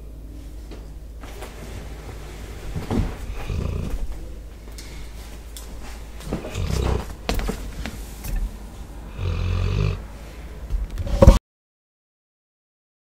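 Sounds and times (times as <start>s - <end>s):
dog snoring: 3.0s - 4.1s, 6.3s - 7.2s, 9.1s - 10.0s.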